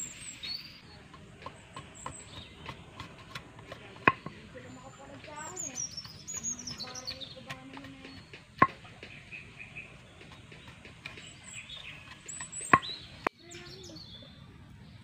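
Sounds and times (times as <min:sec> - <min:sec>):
birds chirping faintly: 0:00.0 - 0:15.0
axe knocking on wood: 0:01.1 - 0:04.4, 0:06.3 - 0:09.2.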